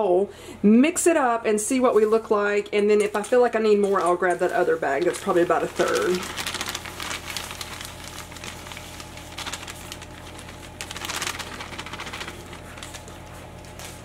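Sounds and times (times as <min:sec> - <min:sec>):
plastic bag crinkling: 0:03.1 - 0:14.0.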